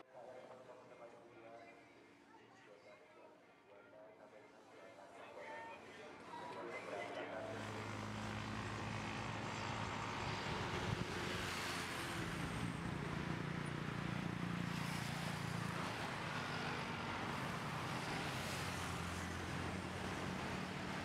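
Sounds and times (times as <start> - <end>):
motorcycles passing: 7.4 - 21.0.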